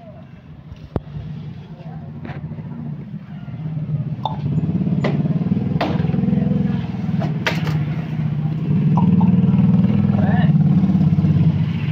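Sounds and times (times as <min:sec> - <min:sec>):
vehicle engine running: 0:02.5 - 0:11.9.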